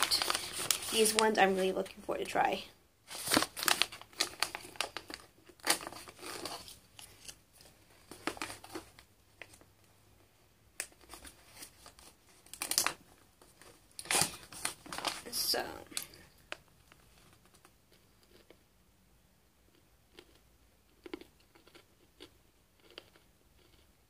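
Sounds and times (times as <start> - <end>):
snack bag crinkling: 0.0 - 1.5, 3.1 - 9.7, 10.8 - 18.6.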